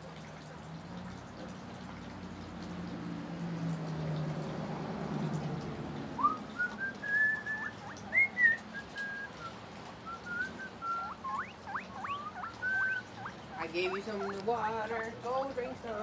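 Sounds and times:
guinea pig wheeking: 10.3s - 14.8s.

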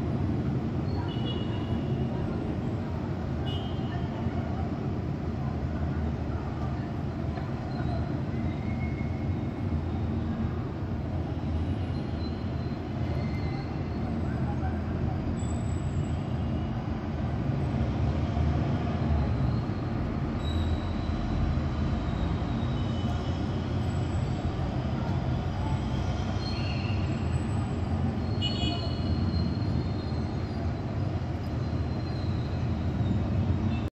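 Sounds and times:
distant city rumble: 0.0s - 33.9s
faint high squeals: 7.6s - 10.4s, 11.4s - 14.8s, 18.9s - 24.4s, 25.6s - 33.8s.

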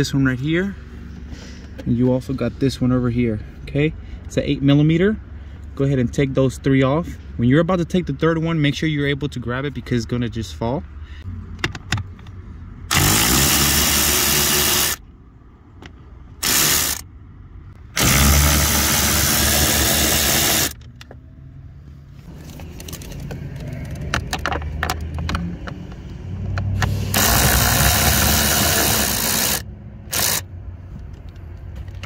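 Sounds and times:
electric ratchet running: 12.9s - 15.0s, 16.4s - 17.0s, 17.9s - 20.8s, 26.9s - 30.5s.

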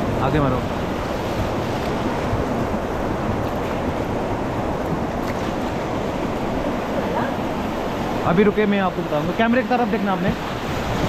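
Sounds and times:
whitewater rapids rushing: 0.0s - 11.0s
wind buffeting microphone: 0.0s - 11.0s.

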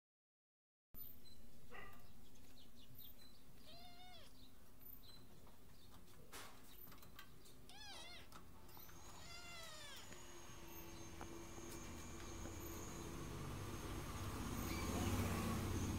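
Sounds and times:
kitten meowing: 3.6s - 4.4s, 7.7s - 11.0s.

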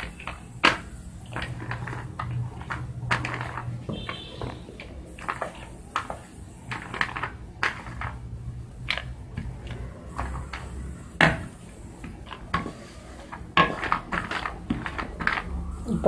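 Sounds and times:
rolling pin tapping and knocking: 0.0s - 15.8s.

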